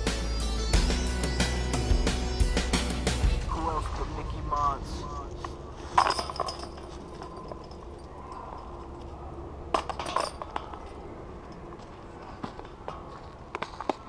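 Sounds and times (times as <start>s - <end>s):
disc golf basket chains clinking: 5.4s - 14.0s.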